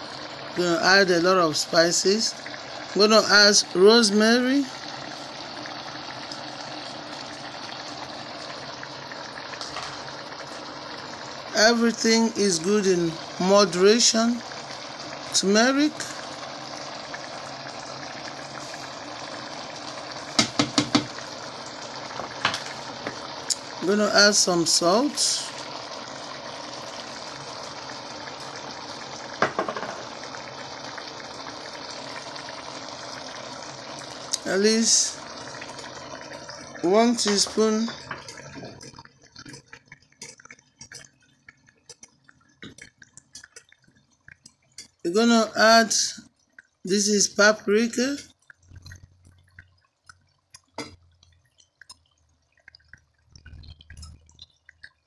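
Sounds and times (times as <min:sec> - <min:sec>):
chicken sizzling in pot: 0:00.0 - 0:43.6.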